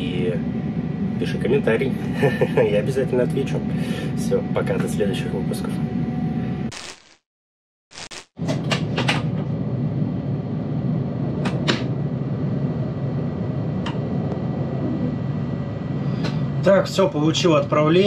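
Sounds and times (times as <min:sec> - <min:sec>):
sharp clicks: 0:07.9 - 0:08.3.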